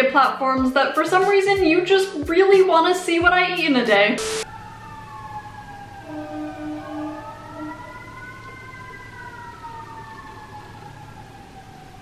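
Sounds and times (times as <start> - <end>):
siren wailing: 4.2 - 12.0.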